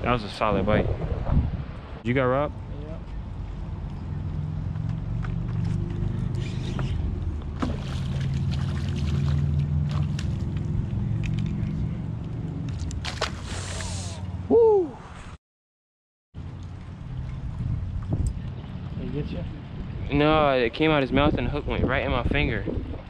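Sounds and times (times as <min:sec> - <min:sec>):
boat engine droning: 0:02.6 - 0:12.6
fish splashing: 0:07.6 - 0:10.7.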